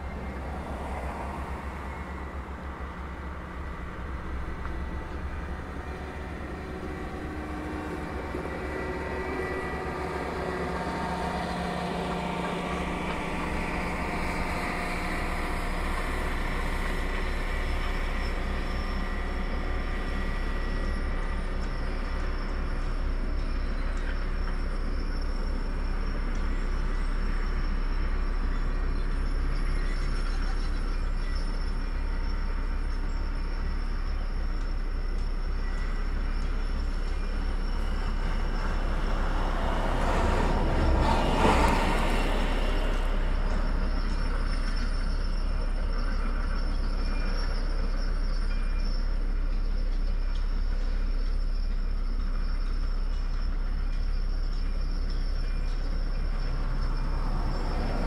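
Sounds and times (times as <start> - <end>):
constant low rumble: 0.0 - 58.0
vehicle passing: 38.1 - 44.5.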